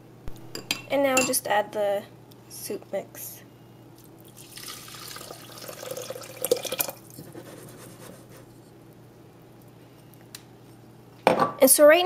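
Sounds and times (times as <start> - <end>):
soup pouring and splashing: 4.2 - 7.2.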